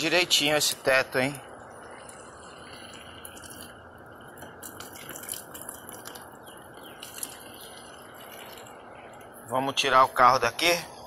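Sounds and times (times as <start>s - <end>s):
hose water hissing: 0.4s - 10.1s
splashes and drips: 1.7s - 9.5s.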